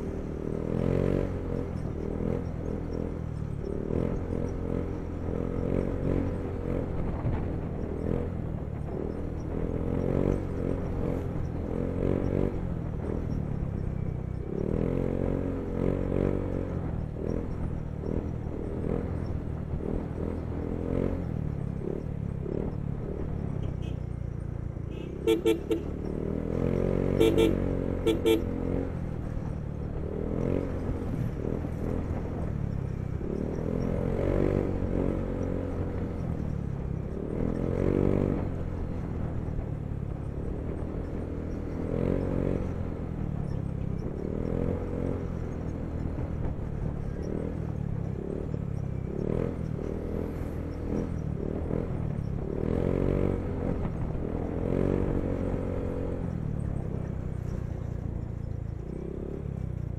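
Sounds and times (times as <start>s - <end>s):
horn beeps: 24.9s - 25.9s, 27.2s - 28.5s
scooter engine running: 27.2s - 28.5s.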